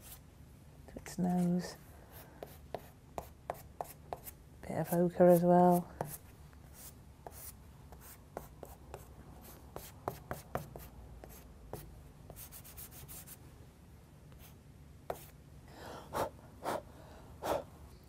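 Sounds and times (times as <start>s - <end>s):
charcoal scratching on paper: 1.7s - 13.4s.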